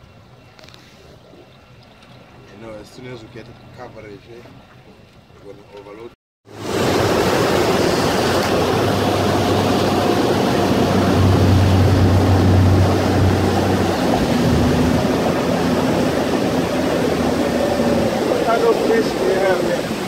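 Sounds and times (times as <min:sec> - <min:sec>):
speedboat engine drone: 0:06.5 - 0:20.0
water rushing: 0:06.5 - 0:20.0.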